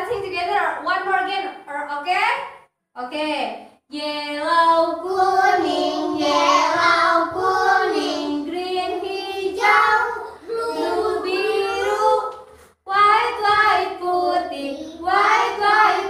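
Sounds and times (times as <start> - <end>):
children singing: 4.5 - 12.4, 13.0 - 16.0.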